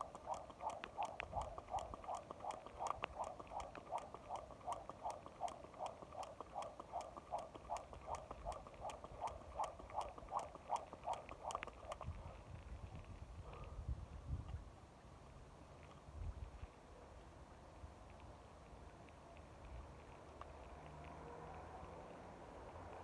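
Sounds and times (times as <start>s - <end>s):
jump rope swishing: 0.0s - 12.4s
rope ticking on pavement: 0.0s - 13.6s, 18.1s - 23.0s.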